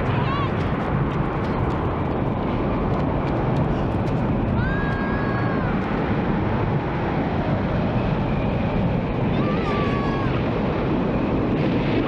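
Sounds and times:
tornado wind roar: 0.0s - 12.0s
high held wail: 9.3s - 10.4s.

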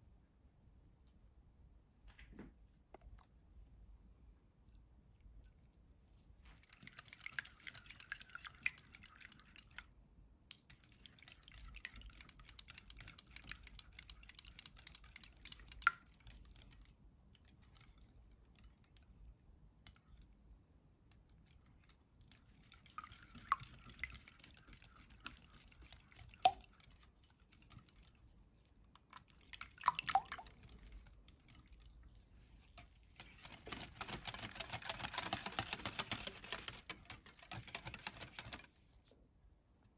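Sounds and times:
whisk clicking in glass bowl: 6.8s - 9.8s, 22.4s - 28.1s, 33.2s - 38.7s.

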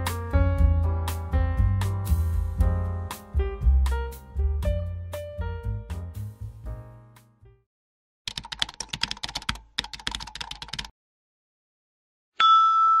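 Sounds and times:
background music: 0.0s - 7.6s
keyboard typing clicks: 8.3s - 10.9s.

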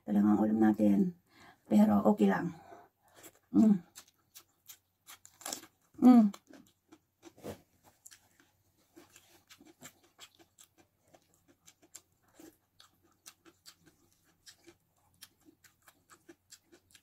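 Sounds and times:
chewing and wet mouth clicks: 8.0s - 17.0s.

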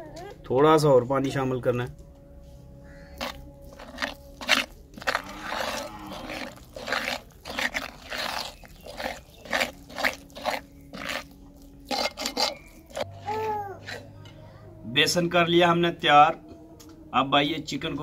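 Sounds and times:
spoon beating wet batter: 3.2s - 13.1s.

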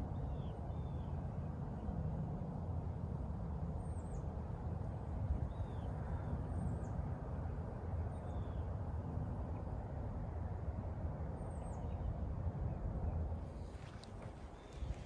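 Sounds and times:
steady low rumble: 3.3s - 15.0s.

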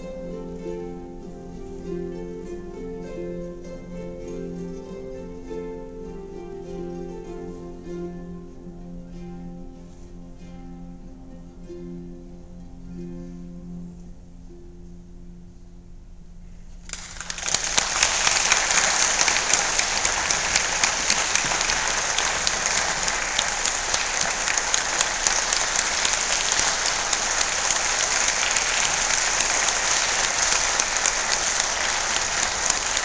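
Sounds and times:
audience applause: 16.9s - 33.0s.

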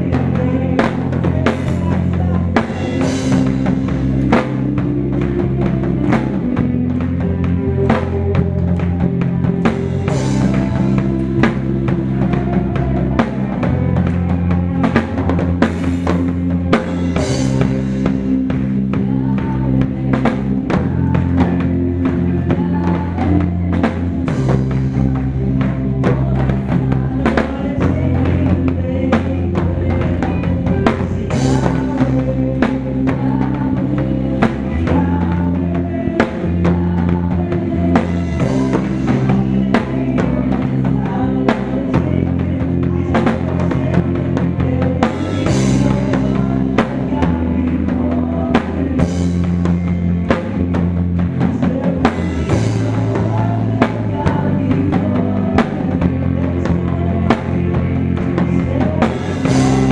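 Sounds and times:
live band music: 0.0s - 59.9s.

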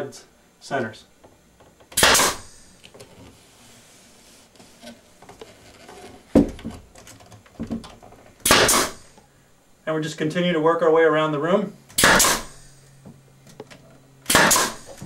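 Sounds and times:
nail gun firing into wood: 2.0s - 2.5s, 8.4s - 9.0s, 11.9s - 12.6s, 14.3s - 15.0s.

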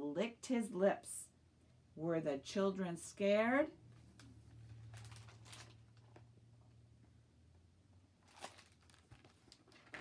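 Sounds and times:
book pages turning: 8.2s - 10.0s.

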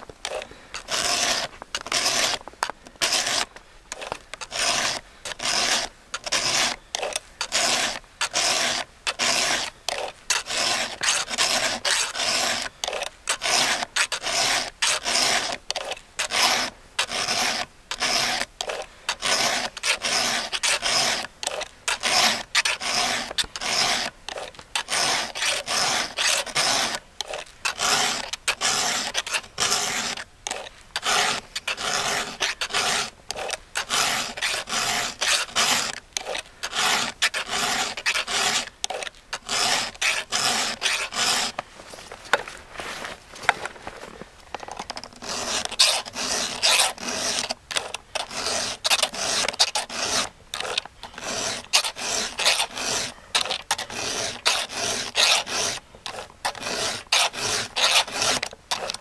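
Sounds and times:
file strokes on saw chain: 0.2s - 2.4s, 3.0s - 41.6s, 45.1s - 59.0s.

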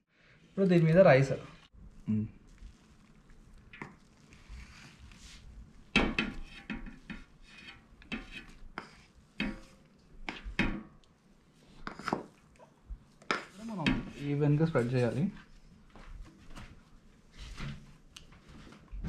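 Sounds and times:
metal spoon scraping cooking pot: 6.0s - 9.7s.

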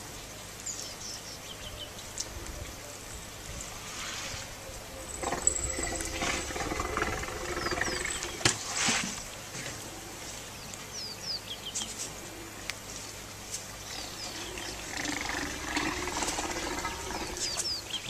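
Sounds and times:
elephant rumbling call: 4.0s - 8.9s, 13.8s - 18.0s.

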